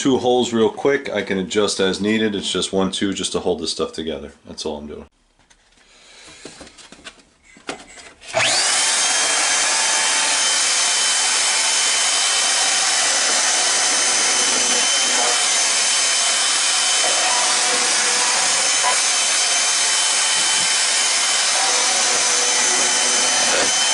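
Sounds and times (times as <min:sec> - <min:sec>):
band saw motor whine: 0:08.3 - 0:23.9.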